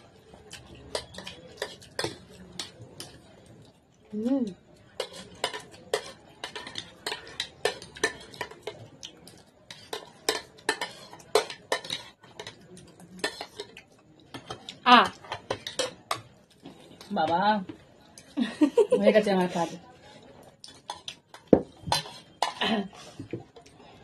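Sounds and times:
spoons clinking on food trays: 5.0 - 8.8, 9.7 - 16.4, 20.7 - 22.8.

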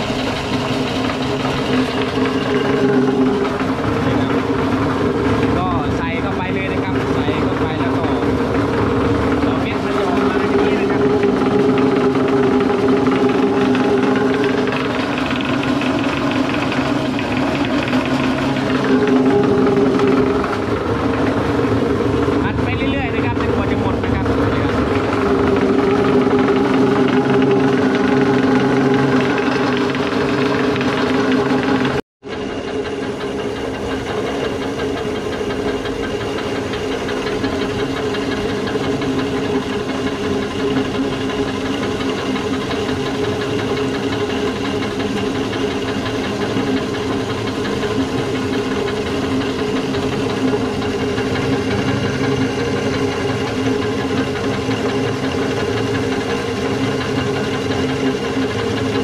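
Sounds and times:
pellet mill running: 0.0 - 59.0.

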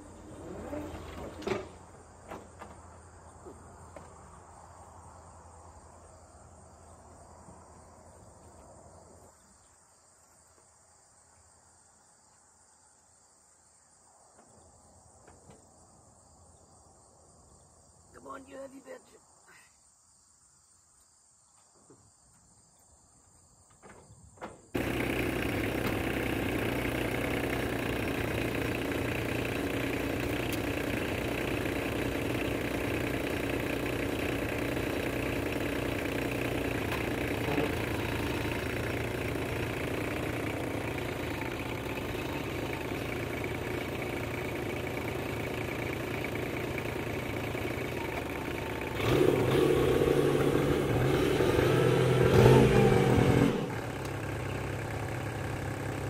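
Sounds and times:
tractor engine idling: 24.8 - 56.0.

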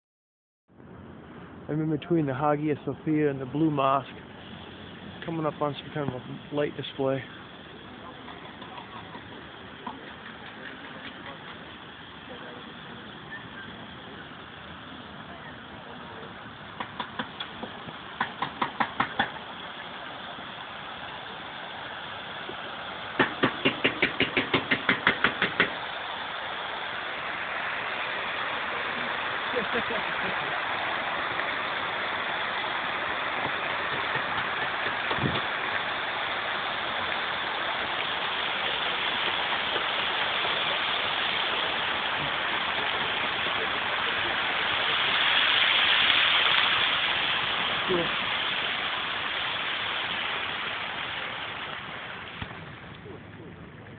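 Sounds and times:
fountain water rushing: 0.7 - 53.9
sharp knocks: 16.8 - 19.4, 23.2 - 25.8.

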